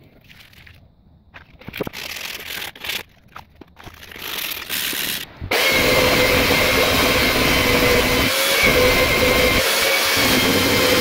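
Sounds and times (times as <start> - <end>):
sandpaper rustling: 1.6 - 5.3
belt sander whining: 3.8 - 11.0.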